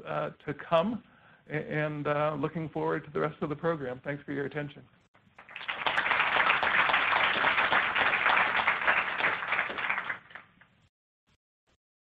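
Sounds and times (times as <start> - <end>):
audience applauding: 5.4 - 10.6.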